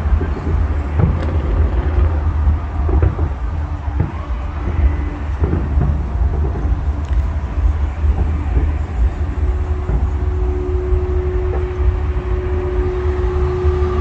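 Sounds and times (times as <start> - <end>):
city traffic rumble: 0.0 - 14.0
humming tone: 3.6 - 14.0.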